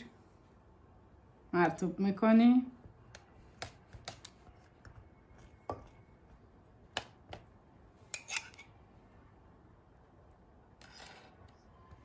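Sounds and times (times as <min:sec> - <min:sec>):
metal spoon clinking on cup: 0:08.1 - 0:08.7.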